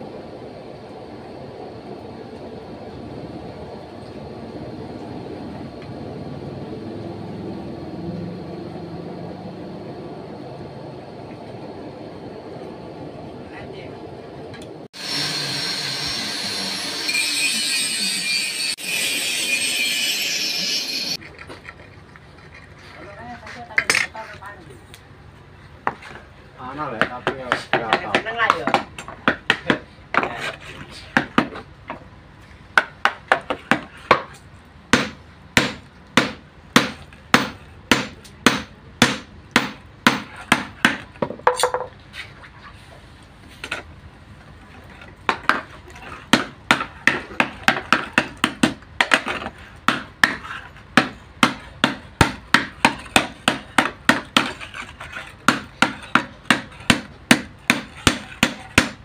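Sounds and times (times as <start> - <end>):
hammer striking metal on anvil: 35.0 - 41.8.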